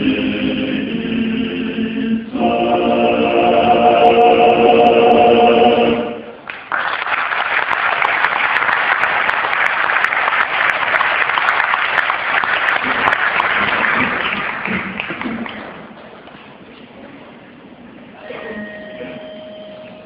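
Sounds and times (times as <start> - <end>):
men's choir singing a chord: 0.0 - 6.3
audience applause: 6.4 - 16.1.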